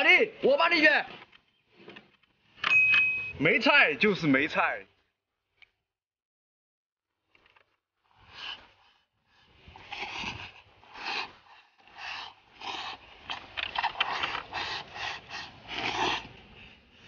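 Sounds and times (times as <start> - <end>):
person slurping rice: 8.0 - 17.0.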